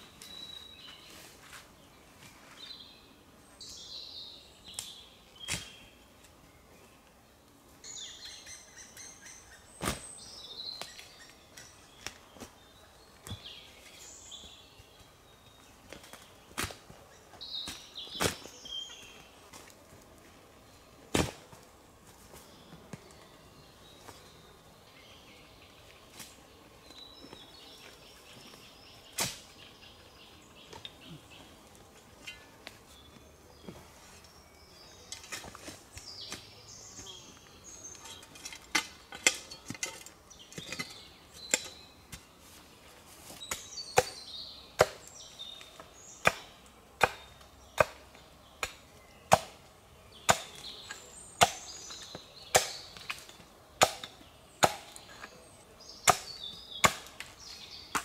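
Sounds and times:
birds chirping: 0.0 - 58.0
axe chopping wood: 21.1 - 21.5, 44.8 - 45.0, 46.2 - 48.0, 48.6 - 49.6, 50.2 - 50.6, 51.4 - 51.7, 52.5 - 55.0, 56.0 - 57.3.

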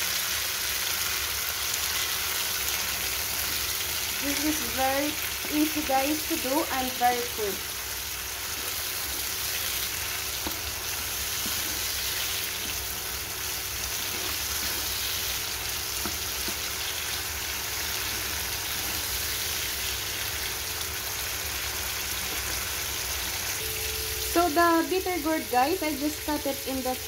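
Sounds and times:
onions sizzling in hot oil: 0.0 - 27.0
spatula tapping a pan: 15.9 - 16.7.

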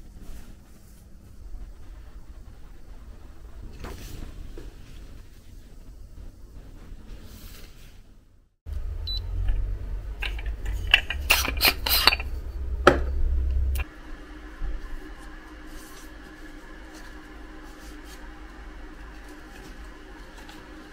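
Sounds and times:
low rumble: 0.0 - 20.9
quiet steady hum: 0.0 - 20.9
dishes and utensils clicking: 10.2 - 13.0.

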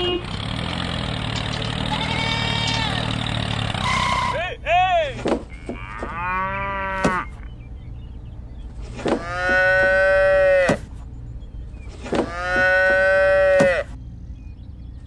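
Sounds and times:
cow mooing: 1.8 - 3.1, 5.5 - 7.4, 9.2 - 10.8, 12.2 - 13.9.

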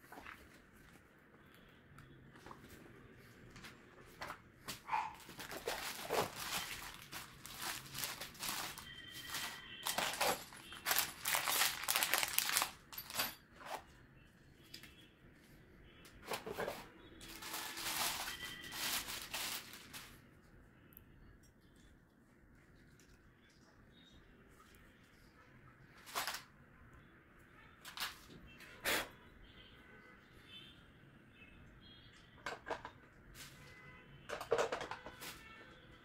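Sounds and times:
plastic bag crinkling: 5.0 - 13.2, 17.2 - 20.2
paper pages turning: 5.3 - 10.2.

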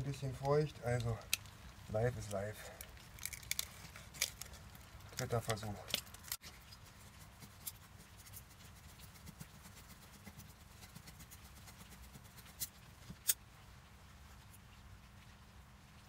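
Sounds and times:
sharp clicks of wood handled: 0.4 - 6.8.

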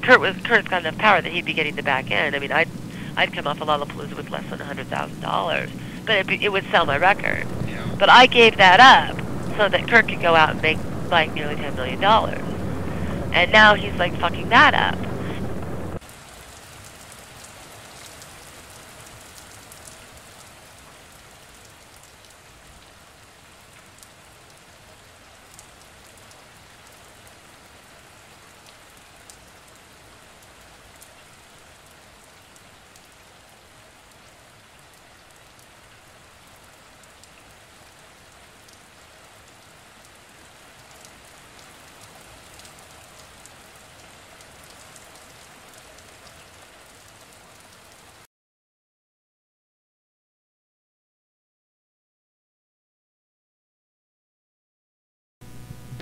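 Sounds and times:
faint steady hiss: 0.0 - 18.3.

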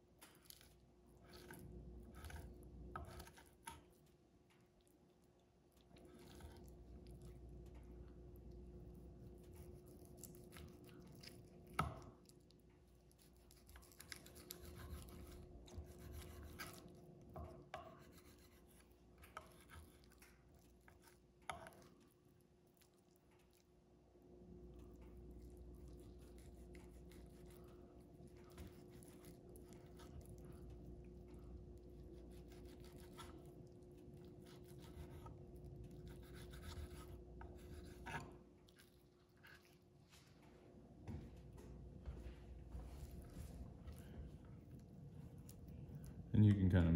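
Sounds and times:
knife slicing meat: 0.4 - 3.8, 13.1 - 17.0, 17.8 - 21.9, 25.8 - 30.8, 31.9 - 33.6, 34.2 - 38.8
faint hum: 0.4 - 46.9.

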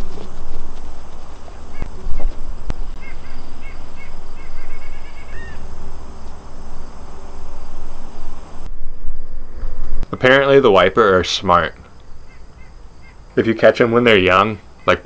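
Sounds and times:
bird chirping: 0.0 - 8.7, 11.7 - 13.4
low rumble: 0.0 - 10.2
insects droning: 0.0 - 15.0.

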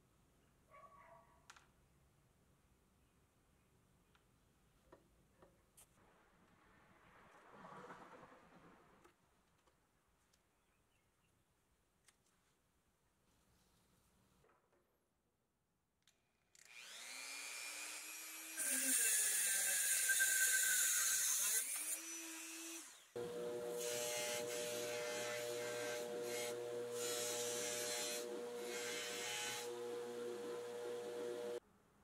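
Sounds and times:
rotary tool whine: 22.8 - 31.6
bench buffer running: 23.2 - 31.6
cut-off wheel grinding steel rod: 23.2 - 31.6.

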